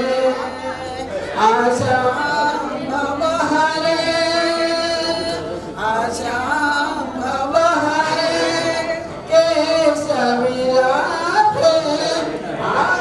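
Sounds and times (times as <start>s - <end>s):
women singing into a microphone: 0.0s - 13.0s.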